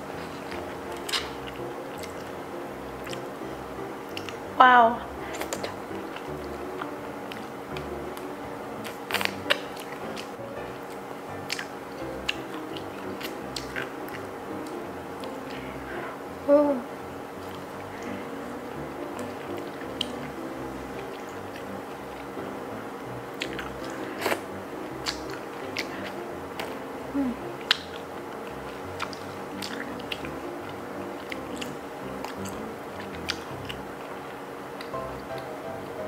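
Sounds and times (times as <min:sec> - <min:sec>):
wet sucking and chewing: 0:00.0 - 0:16.4, 0:17.0 - 0:35.5.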